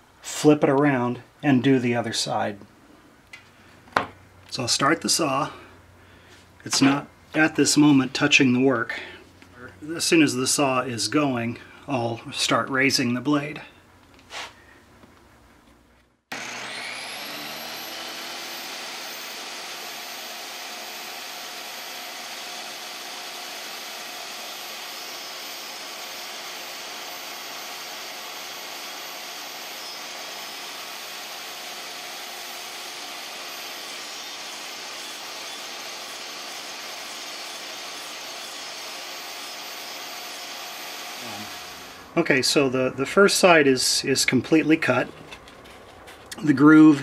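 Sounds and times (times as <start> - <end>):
saw blade cutting plywood: 16.3 - 42.0
table saw whining: 16.3 - 42.2.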